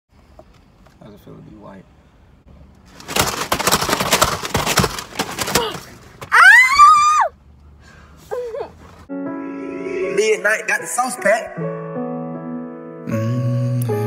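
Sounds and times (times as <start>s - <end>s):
boy yelling: 5.5s - 7.3s
boy screaming: 5.6s - 7.4s.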